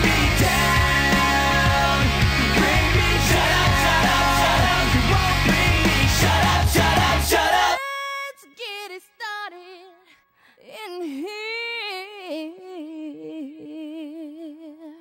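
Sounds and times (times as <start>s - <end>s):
loud rock music: 0.0s - 7.8s
woman singing unaccompanied: 7.8s - 15.0s.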